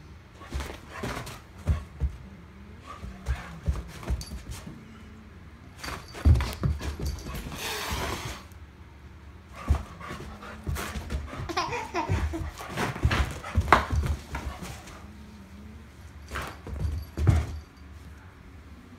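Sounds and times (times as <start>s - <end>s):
soft thumps of paws and bodies: 0.5s - 2.3s, 5.8s - 7.6s, 16.2s - 17.8s.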